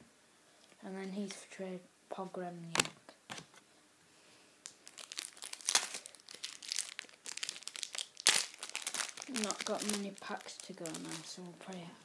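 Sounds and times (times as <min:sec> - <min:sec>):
foil wrapper ripping: 0:04.6 - 0:11.8
foil wrapper crinkling: 0:04.6 - 0:11.9.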